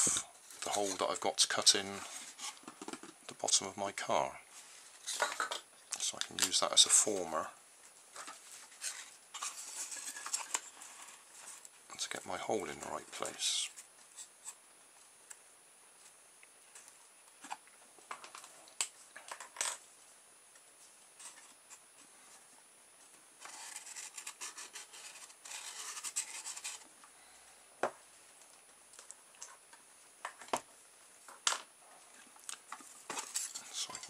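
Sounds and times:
scratching and rubbing of cardboard: 23.4s - 27.0s.

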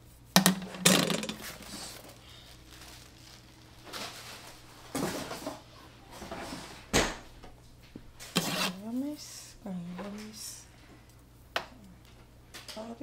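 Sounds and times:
plastic wrapping rustling: 0.5s - 6.9s.

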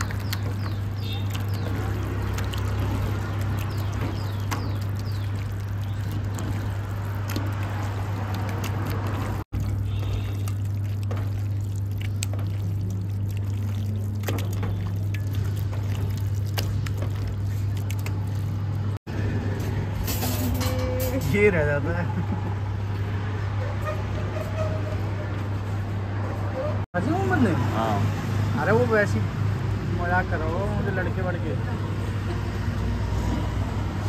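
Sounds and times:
wet squelching of meat kneaded by hand: 0.0s - 19.0s.

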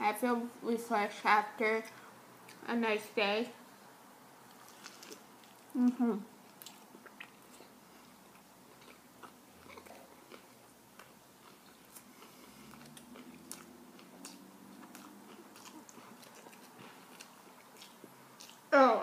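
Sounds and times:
chewing soft food: 4.5s - 18.7s.

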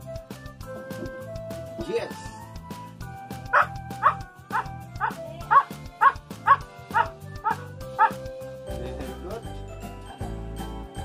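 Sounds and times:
dog barking: 3.5s - 8.2s.

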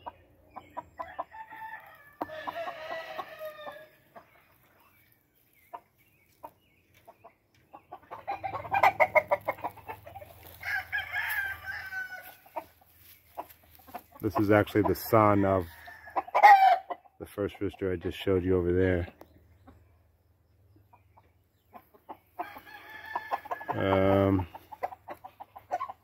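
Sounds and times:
chickens clucking rapidly: 0.0s - 11.3s, 12.4s - 26.0s
rooster crowing: 1.0s - 3.9s, 10.5s - 12.4s, 15.6s - 16.8s, 22.4s - 23.9s.

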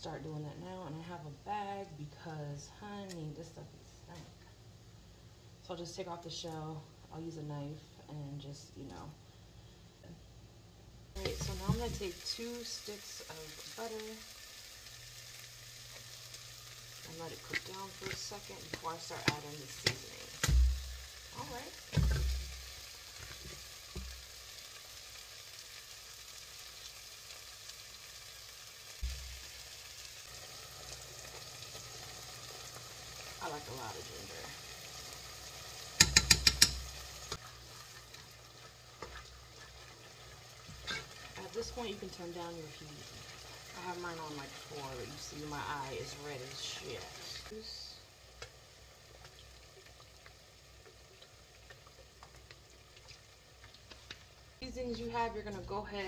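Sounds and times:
onions sizzling in a pot: 0.0s - 56.0s
wooden spoon stirring: 37.4s - 41.4s.

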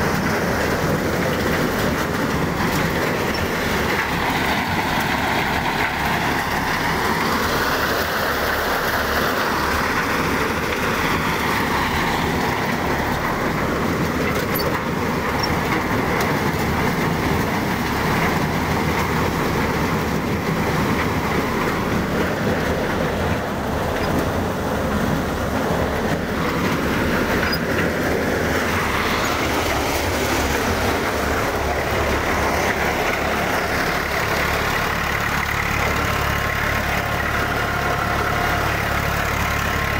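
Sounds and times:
tractor engine: 0.0s - 39.9s
thresher rattling: 9.8s - 39.9s.

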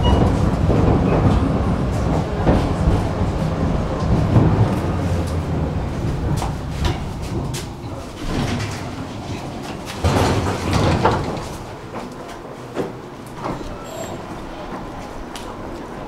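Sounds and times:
tram knocks: 0.0s - 16.0s
tram rumbling on rails: 0.0s - 16.0s.

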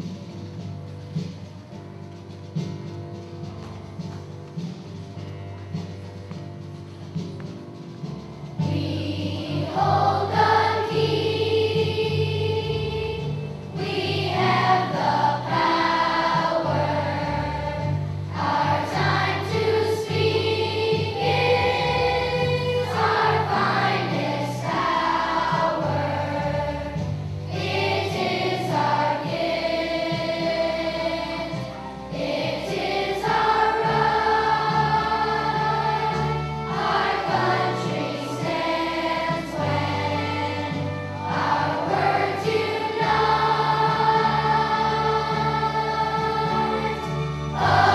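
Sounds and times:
instrumental accompaniment: 0.0s - 47.9s
children's choir singing: 8.6s - 47.9s.

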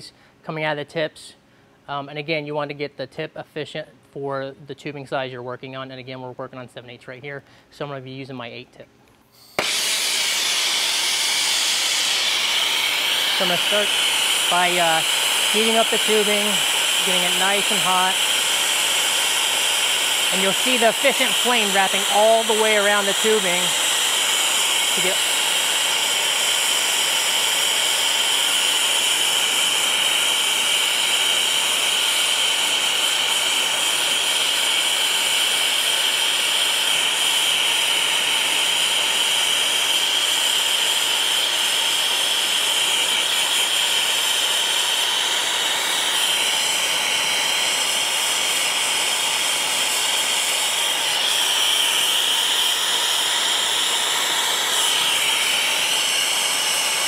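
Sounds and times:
torch flame hissing: 9.4s - 57.0s.

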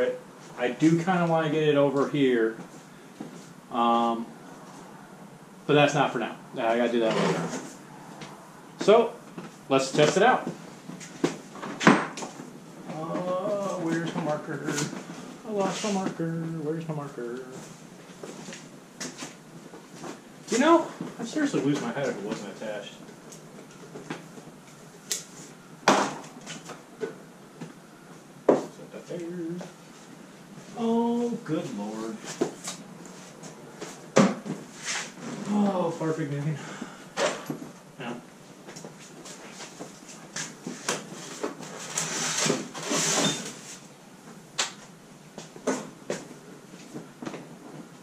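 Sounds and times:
rustling scrape: 34.7s - 35.5s, 39.0s - 43.9s.

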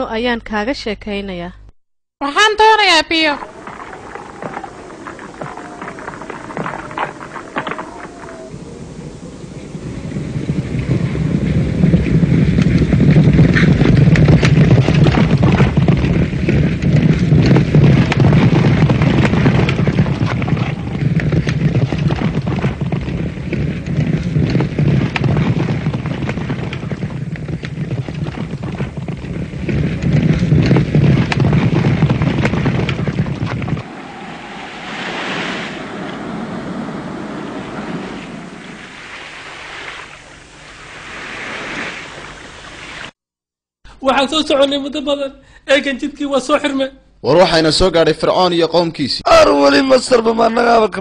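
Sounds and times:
crackles: 2.3s - 43.2s
deep rumble: 2.6s - 39.4s
loud rushing noise: 33.8s - 42.3s.

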